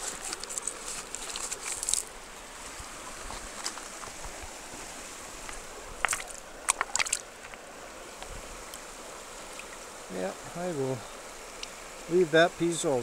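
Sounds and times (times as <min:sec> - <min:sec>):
river water rushing over gravel: 0:00.0 - 0:13.0
wet stones knocking: 0:06.0 - 0:07.6.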